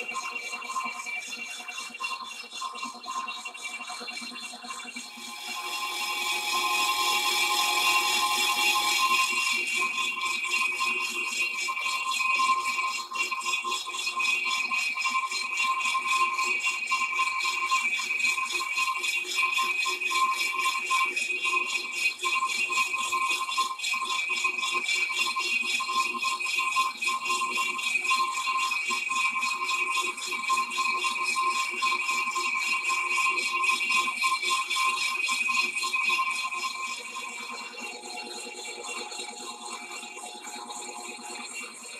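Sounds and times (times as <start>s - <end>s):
lathe whine: 5.1s - 9.8s.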